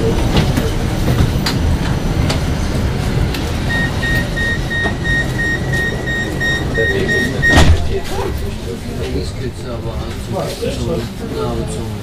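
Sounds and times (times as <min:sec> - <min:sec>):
low rumble of tram passing: 0:00.0 - 0:12.0
repeating electronic door beep: 0:03.7 - 0:08.0.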